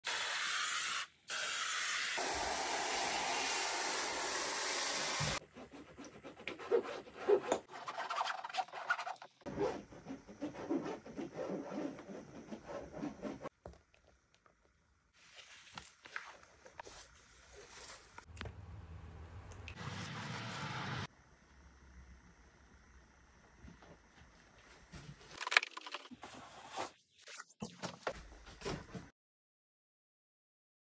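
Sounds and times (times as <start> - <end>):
pressure sprayer hissing: 1.3 - 5.4
paint roller in wet paint: 5.0 - 13.5
scratchy rubbing on canvas: 5.4 - 13.5.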